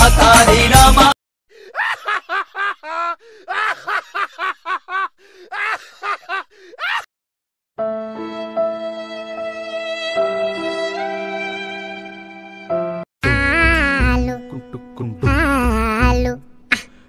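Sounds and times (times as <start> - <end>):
music: 0.0 - 1.2, 7.8 - 17.0.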